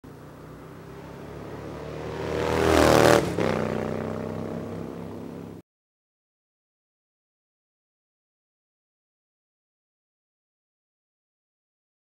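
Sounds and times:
motorcycle passing by: 0.1 - 5.6.

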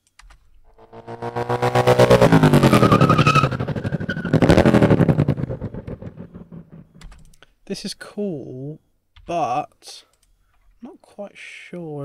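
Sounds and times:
pulsing sci-fi spaceship pass: 0.7 - 7.0.

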